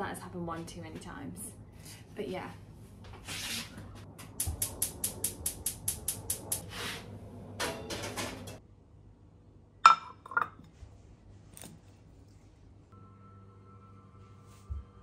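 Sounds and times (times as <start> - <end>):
ceramic plate clinking: 9.8 - 10.7.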